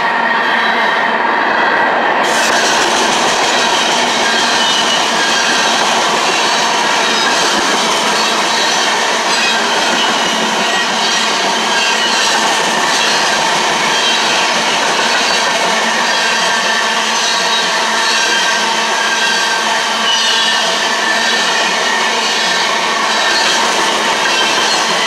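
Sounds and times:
steel wheels on rails: 0:00.0 - 0:25.0.

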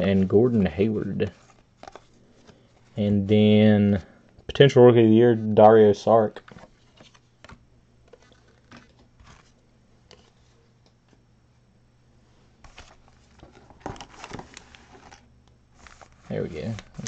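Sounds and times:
hands handling trading cards: 0:00.0 - 0:03.0, 0:06.4 - 0:11.2, 0:12.6 - 0:17.0
foil packs crinkling: 0:12.7 - 0:15.2, 0:15.8 - 0:17.0.

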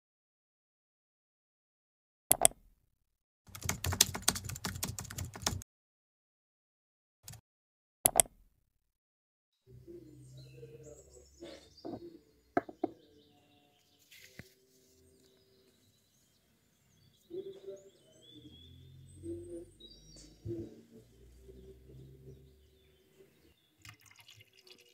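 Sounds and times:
mouse clicks: 0:02.3 - 0:02.6, 0:08.1 - 0:08.4
birds chirping: 0:09.7 - 0:24.9
objects set down on desk: 0:12.6 - 0:13.0.

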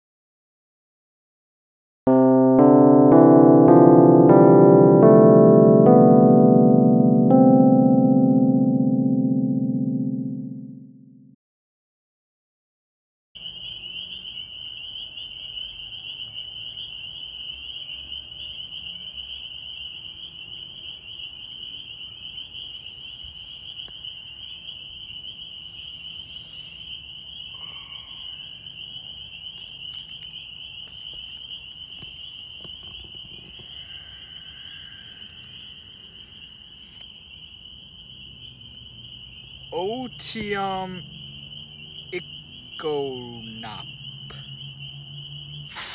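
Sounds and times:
chorus of small animals trilling: 0:25.5 - 0:30.2, 0:32.6 - 0:36.7.

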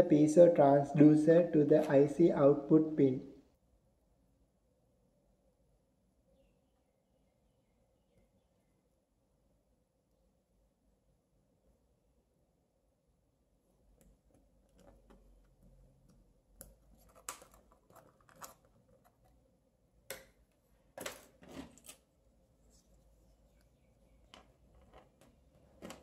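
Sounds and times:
wire leads clicking and scraping: 0:16.6 - 0:19.4, 0:23.6 - 0:26.0.

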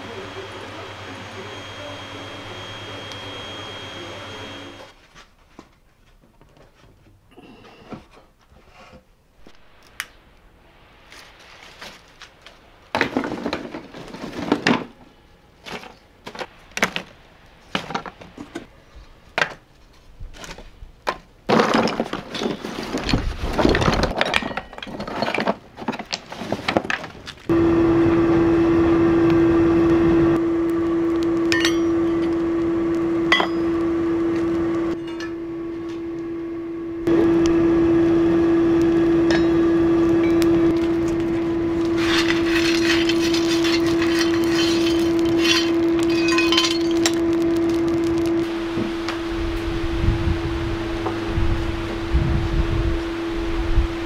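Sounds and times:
machine humming: 0:00.0 - 0:04.9, 0:27.5 - 0:54.0
hard objects clattering: 0:13.0 - 0:15.0, 0:21.1 - 0:27.5, 0:40.7 - 0:48.4.

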